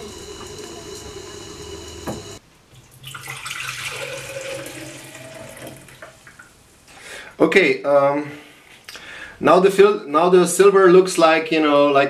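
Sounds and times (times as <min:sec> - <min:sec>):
liquid boiling in a pot: 0:00.0 - 0:02.4
liquid poured into glass beaker: 0:03.0 - 0:06.1.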